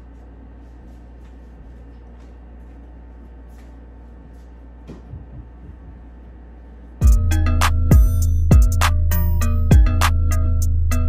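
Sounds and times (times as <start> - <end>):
loud music with heavy bass: 7.0 - 11.0.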